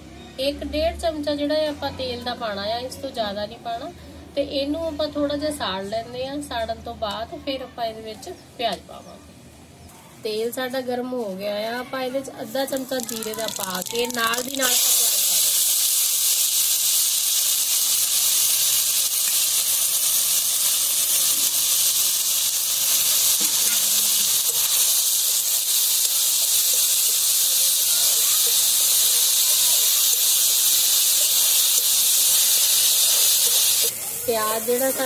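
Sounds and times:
onions sizzling in hot oil: 11.2 - 35.0.

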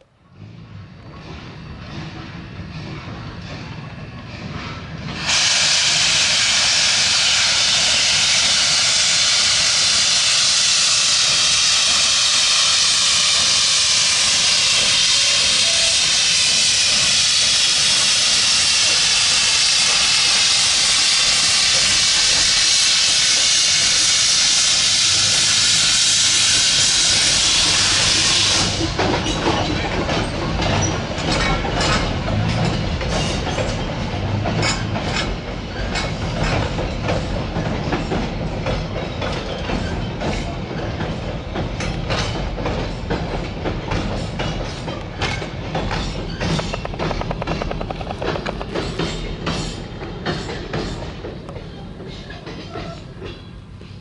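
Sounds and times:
train wheels clicking over rail joints: 0.2 - 54.0
locomotive steam hissing: 1.4 - 54.0
low rumble of bridge: 43.1 - 51.7.

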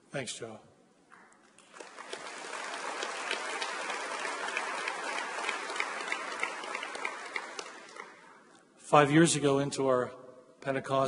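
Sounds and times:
audience applauding: 1.6 - 8.5.

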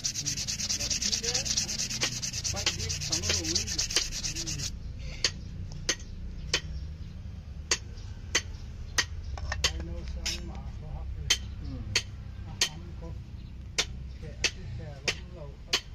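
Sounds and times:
sanding steel blade: 0.0 - 4.7.

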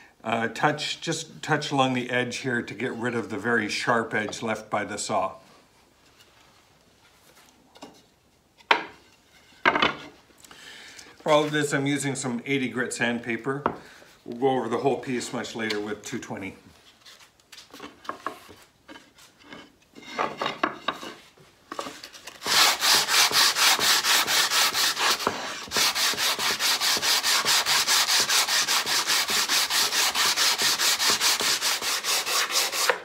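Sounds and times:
sandpaper rubbing on wood: 22.4 - 33.0.

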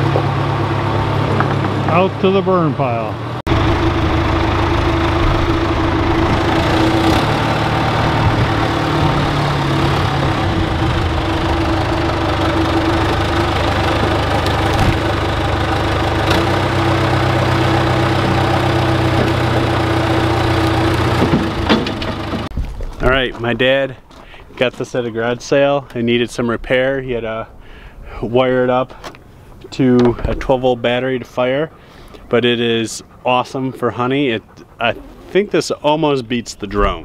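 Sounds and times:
diesel engine running: 0.0 - 22.5.

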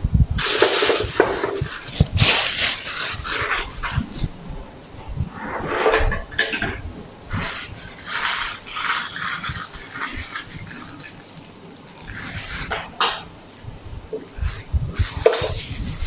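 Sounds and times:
plastic bag rustling and crinkling: 0.4 - 4.3, 7.3 - 16.0.

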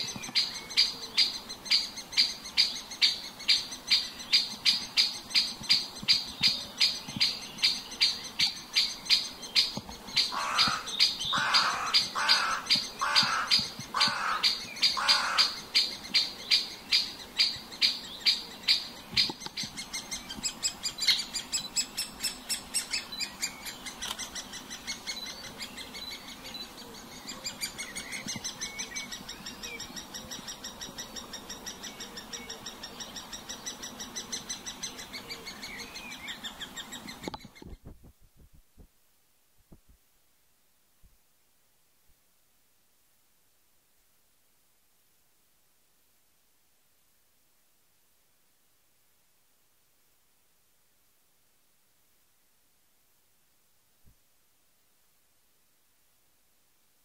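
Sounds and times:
woodpecker lower rougher calls: 0.0 - 37.6
woodpecker sharp high calls: 0.0 - 37.6.

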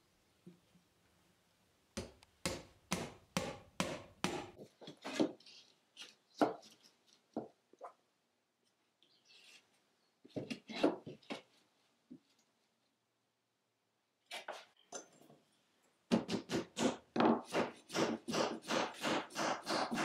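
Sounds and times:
hammer striking wooden wedges: 2.0 - 4.6, 16.1 - 20.0.

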